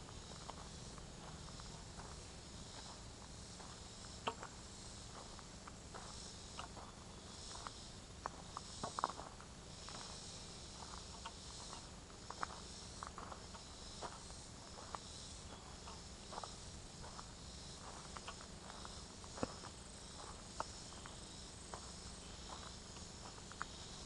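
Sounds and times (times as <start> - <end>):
footsteps on dirt trail: 0.0 - 24.0
insects buzzing: 0.0 - 24.0.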